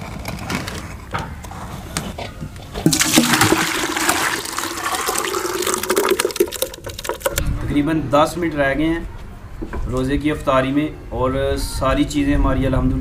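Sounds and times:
liquid sloshing in a bowl: 0:02.8 - 0:07.4.

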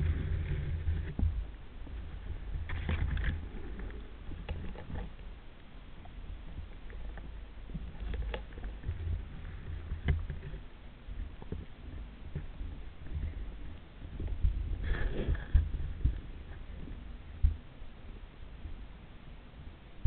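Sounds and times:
water clicks and splashes: 0:00.0 - 0:10.6
water rumbling: 0:00.0 - 0:20.0.

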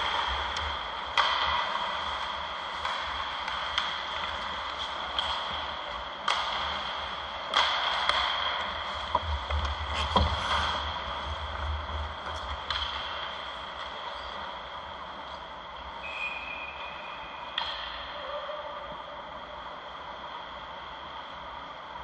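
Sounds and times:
skate blades scraping ice: 0:00.0 - 0:15.4
hockey sticks and puck clacking: 0:00.0 - 0:18.2.

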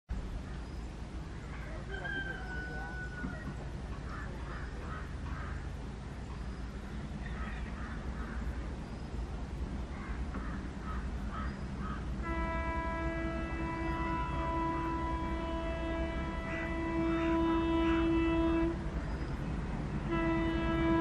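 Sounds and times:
diesel locomotive rumble: 0:00.1 - 0:21.0
crows cawing: 0:04.0 - 0:05.7, 0:09.9 - 0:12.1
locomotive horn blast: 0:12.0 - 0:21.0.

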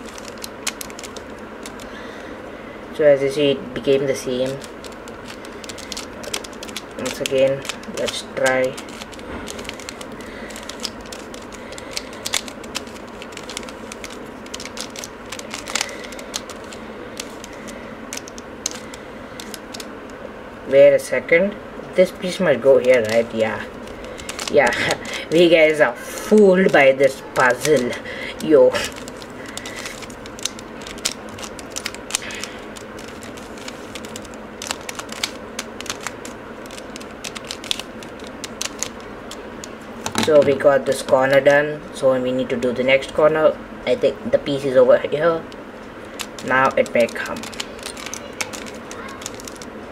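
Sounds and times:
puzzle cube clicking: 0:00.0 - 0:01.9, 0:04.4 - 0:19.9, 0:22.9 - 0:24.8, 0:27.6 - 0:39.8, 0:46.1 - 0:49.7
steady background hiss: 0:00.0 - 0:49.9.

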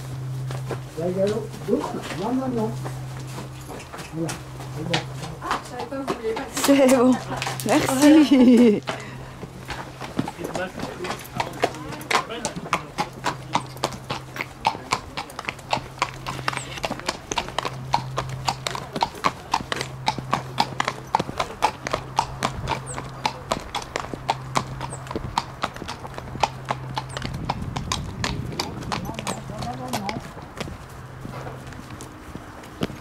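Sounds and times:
low hum: 0:00.0 - 0:05.7
hooves clip-clopping: 0:00.0 - 0:33.0.

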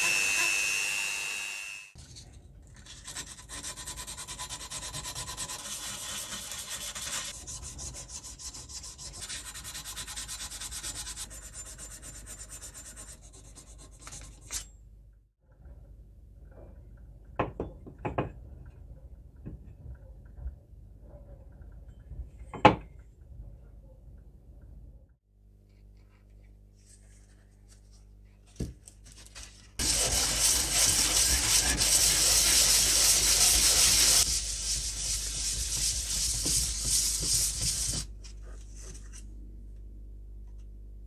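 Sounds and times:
abrasive paper scratching metal: 0:02.8 - 0:14.7, 0:29.3 - 0:38.1.

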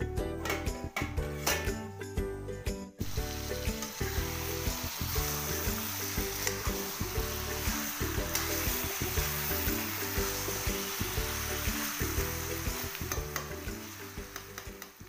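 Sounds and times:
background music: 0:00.0 - 0:15.0
chicken sizzling in a pot: 0:03.0 - 0:15.0.

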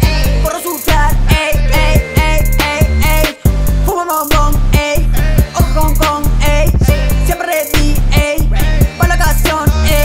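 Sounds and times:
deep booming bass: 0:00.0 - 0:10.0
fast hi-hats: 0:00.0 - 0:10.0
synth melody: 0:00.2 - 0:04.3.

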